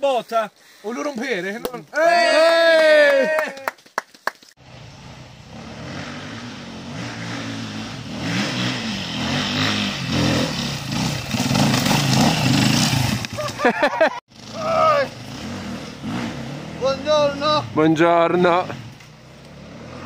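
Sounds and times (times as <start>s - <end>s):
loud shout: 1.9s - 3.8s, 14.5s - 15.1s
vehicle engine revving: 4.6s - 13.6s, 14.3s - 20.0s.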